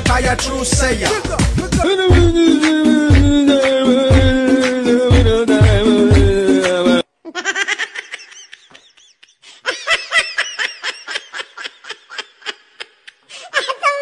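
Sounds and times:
background music: 0.0 - 7.1
high-pitched laughter: 7.2 - 14.0.

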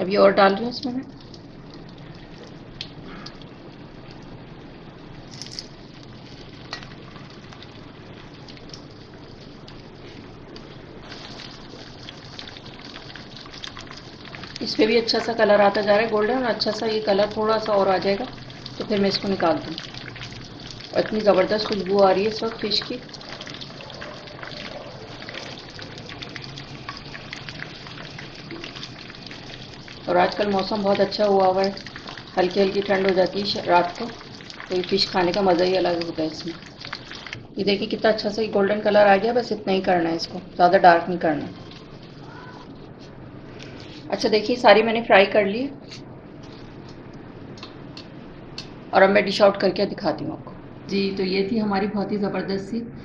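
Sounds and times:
oil popping and crackling: 0.6 - 38.4, 39.8 - 43.0
fish frying in hot oil: 0.6 - 42.4.

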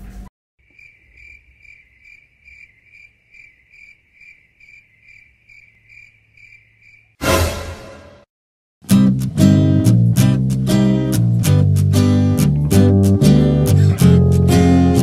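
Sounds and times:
cricket chirping: 0.6 - 7.2.

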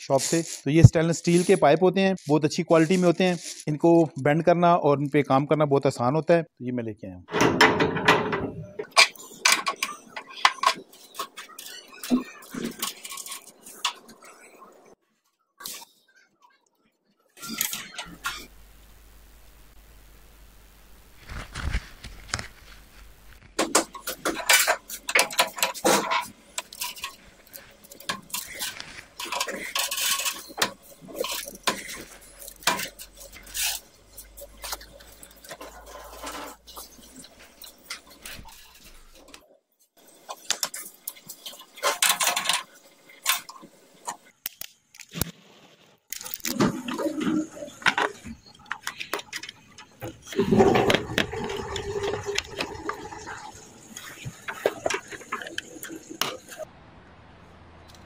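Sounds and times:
hands scraping fittings: 23.6 - 39.3
metal hoses clinking: 23.6 - 39.4.

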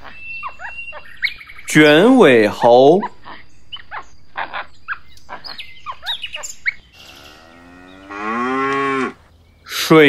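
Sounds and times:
monkey chirping and squeaking: 0.0 - 1.6, 2.9 - 6.9
buffalo mooing: 7.0 - 9.2.

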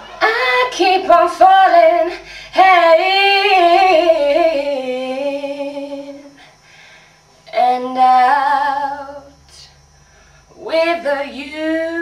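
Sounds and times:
person singing unaccompanied: 0.0 - 6.4, 7.5 - 9.8, 10.6 - 12.0
person breathing: 2.1 - 2.6, 6.3 - 7.3, 9.9 - 10.6.

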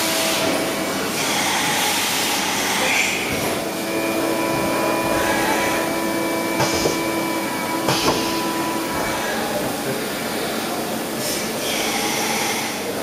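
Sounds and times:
lathe whirring: 0.0 - 13.0
clattering knocks: 6.6 - 7.2, 7.8 - 8.4.

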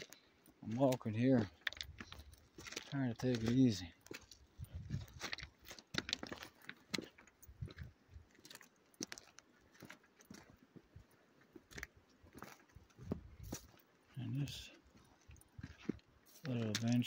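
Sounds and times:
footsteps crunching on gravel: 0.0 - 17.0.

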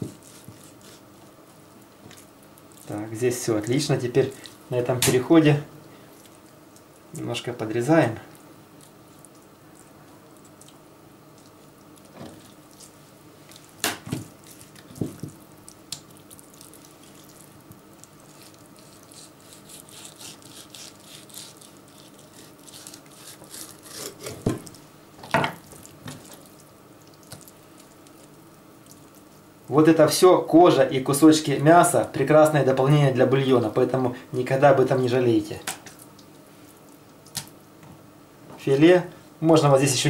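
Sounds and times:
knife scraping fish skin: 0.0 - 1.1, 18.3 - 24.5.

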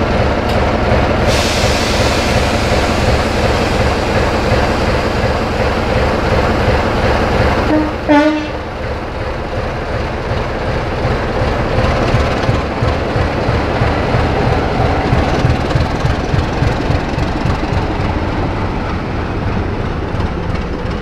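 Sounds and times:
diesel locomotive engine running: 0.0 - 21.0
locomotive horn: 7.7 - 8.7.

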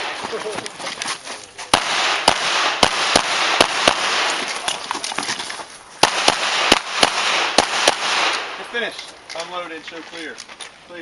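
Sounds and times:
pistol shots: 1.7 - 4.8, 6.0 - 8.8.

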